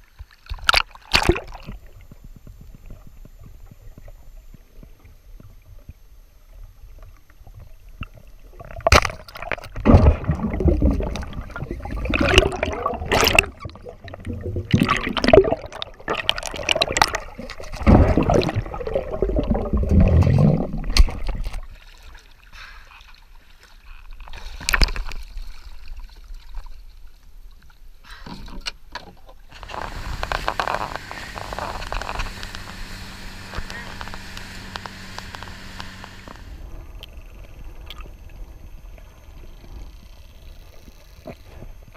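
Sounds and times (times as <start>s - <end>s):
underwater gurgling and sloshing: 0.0s - 41.9s
wind and spray from boat: 29.5s - 40.0s.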